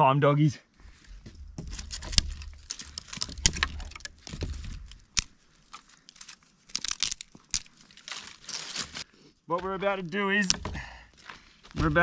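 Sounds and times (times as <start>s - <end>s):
sticks and twigs snapping: 1.1s - 9.1s, 10.4s - 10.8s.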